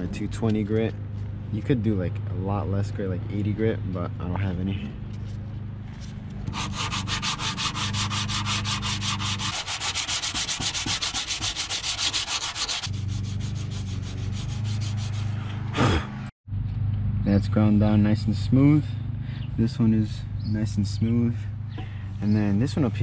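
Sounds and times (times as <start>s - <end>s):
sandpaper sanding strokes: 6.5s - 15.5s.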